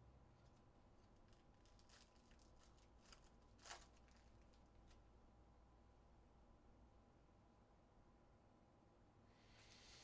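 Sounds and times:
foil wrapper crinkling and tearing: 0.4s - 5.0s.

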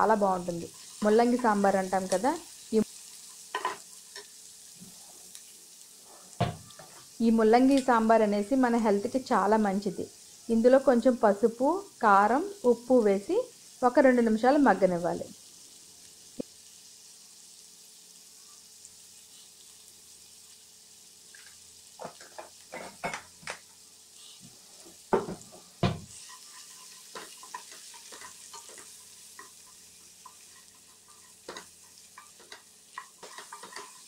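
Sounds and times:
vegetables sizzling in oil: 0.0s - 34.0s
wooden spatula scraping pan: 26.1s - 34.0s.

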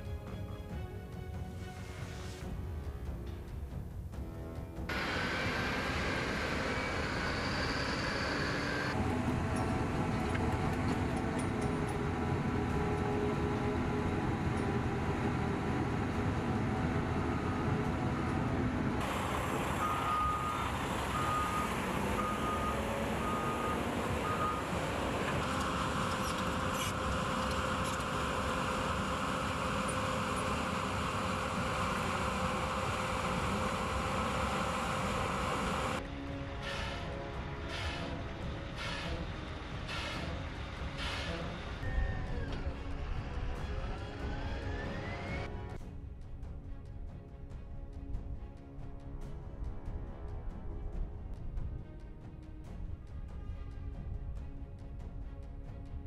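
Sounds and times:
heavy diesel trucks running: 4.2s - 45.8s
earthmoving machinery running: 4.9s - 36.0s
reversing alarm beeps: 19.7s - 25.7s.

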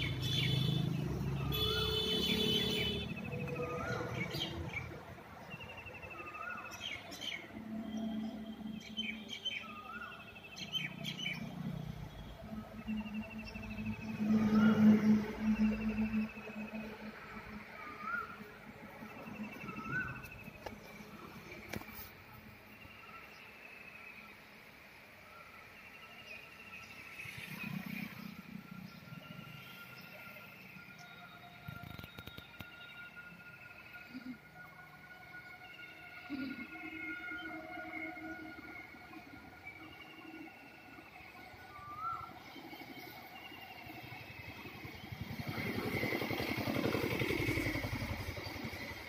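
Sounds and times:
motorcycle engine running: 43.8s - 49.0s.

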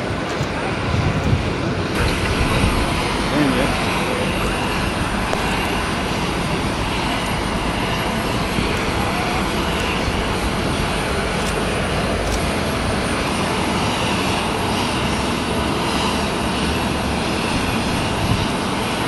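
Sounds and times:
jet engines running: 0.0s - 19.0s.

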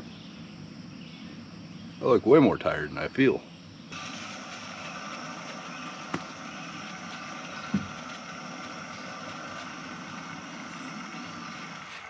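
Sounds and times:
gas stove hissing: 3.9s - 12.0s.

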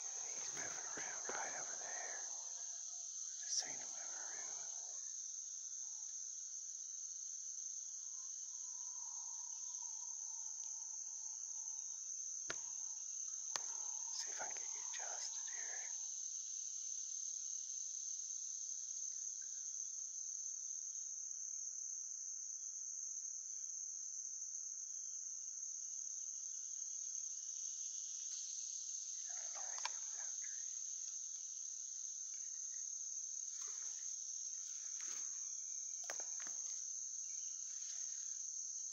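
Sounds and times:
faint clicks and rustles: 0.0s - 2.7s
insects droning: 0.0s - 38.9s.

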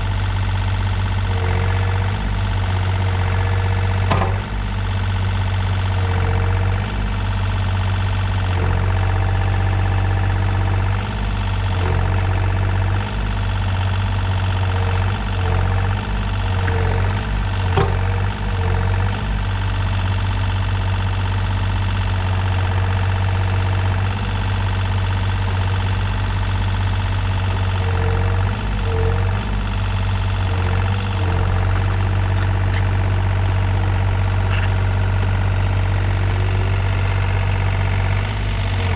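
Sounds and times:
excavator diesel engine running: 0.0s - 38.9s
hydraulics whining: 0.0s - 38.9s
short clunks: 3.8s - 4.6s, 16.6s - 18.3s.

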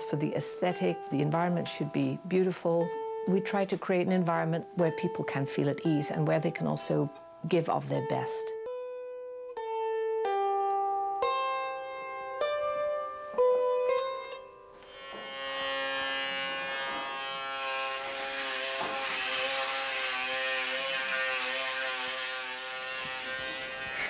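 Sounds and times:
plucked string instrument: 0.0s - 24.0s
electric shaver buzzing: 14.2s - 24.0s
sustained tones: 14.2s - 24.0s.

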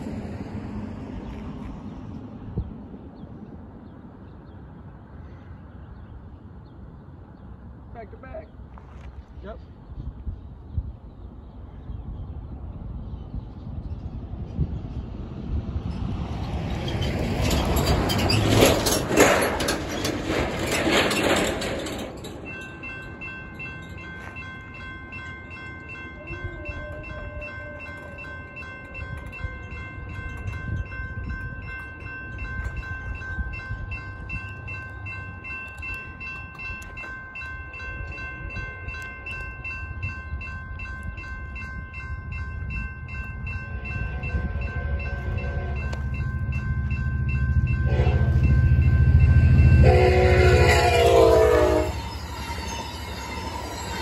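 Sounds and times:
train rumble: 0.0s - 54.0s
railroad crossing bells ringing: 15.8s - 54.0s
locomotive horn blasts: 44.0s - 46.4s, 47.6s - 52.8s.

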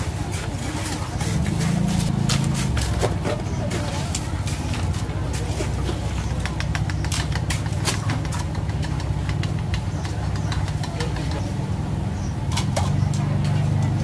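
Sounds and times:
vehicle engine rumbling: 0.0s - 14.0s
sharp clicks and clatter: 5.6s - 11.4s.

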